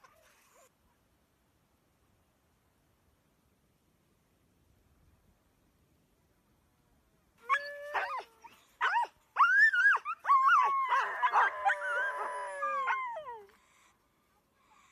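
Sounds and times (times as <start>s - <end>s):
dogs howling: 7.4s - 13.5s.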